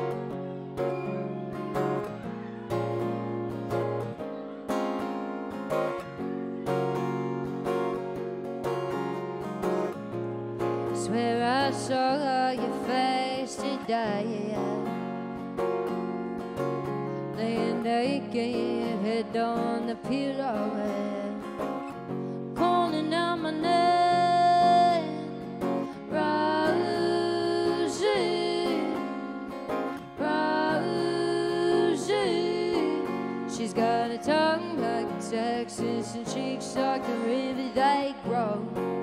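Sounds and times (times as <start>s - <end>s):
strummed acoustic guitar: 0.0s - 39.0s
woman singing: 10.8s - 15.7s, 17.2s - 39.0s.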